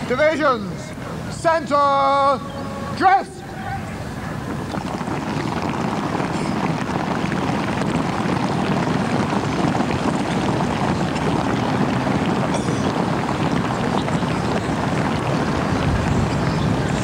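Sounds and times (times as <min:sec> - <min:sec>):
wind rushing on microphone: 0:03.5 - 0:17.0.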